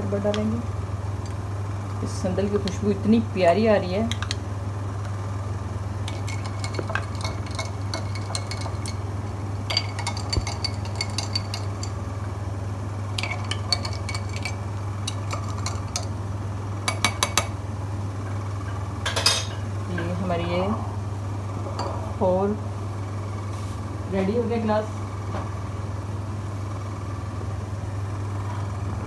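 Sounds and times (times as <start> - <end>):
spoon and ice clinking in glass: 6.1 - 9.0, 9.7 - 12.0, 13.2 - 16.1.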